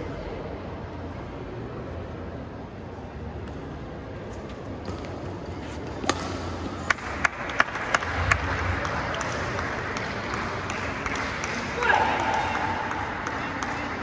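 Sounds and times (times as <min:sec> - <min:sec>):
low hall hum: 0:00.0 - 0:14.0
shoes on court: 0:04.2 - 0:06.8
racquets hitting shuttlecock: 0:04.4 - 0:14.0.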